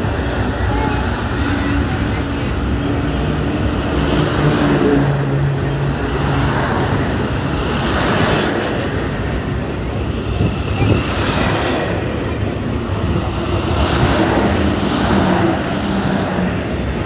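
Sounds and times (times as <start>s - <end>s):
truck passing close: 0.0s - 17.0s
tyre and wind noise: 8.0s - 15.6s.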